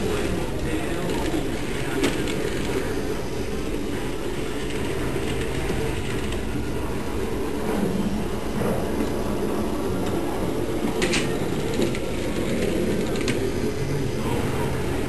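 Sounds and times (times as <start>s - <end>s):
toy train motor whirring: 0.0s - 6.6s, 10.8s - 14.1s.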